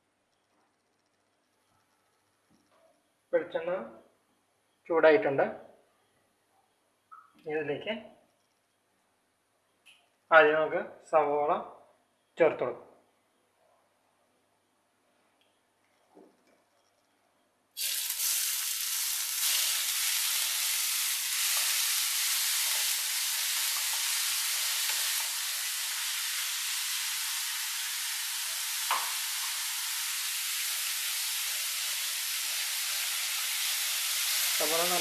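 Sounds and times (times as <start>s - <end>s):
onions sizzling in oil: 17.8s - 35.0s.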